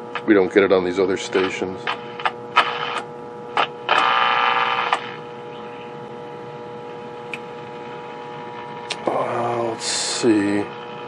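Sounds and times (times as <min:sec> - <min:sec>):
loudspeaker hum: 0:00.0 - 0:04.0.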